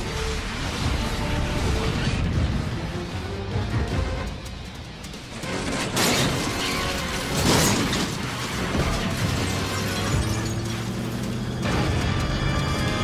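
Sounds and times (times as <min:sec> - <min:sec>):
action film score music: 0:00.0 - 0:13.0
car crashing: 0:05.2 - 0:12.2.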